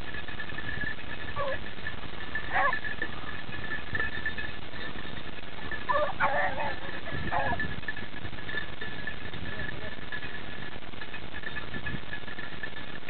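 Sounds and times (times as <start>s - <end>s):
hounds baying: 1.2s - 10.1s.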